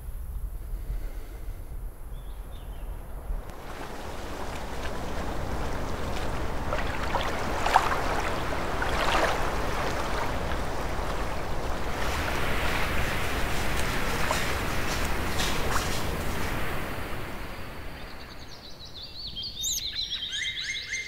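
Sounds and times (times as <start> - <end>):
small water splashes: 3.5 - 17.8
river water rushing: 3.5 - 17.9.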